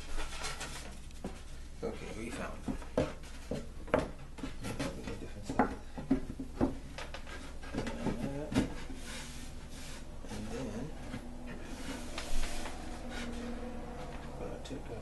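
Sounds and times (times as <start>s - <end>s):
wood rubbing: 0.1s - 15.0s
wood knocking on wood: 2.6s - 8.9s.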